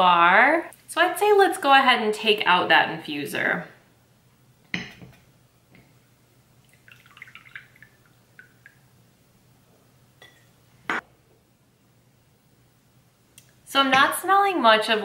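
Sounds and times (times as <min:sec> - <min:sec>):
tea dripping into mug: 0:06.6 - 0:08.8.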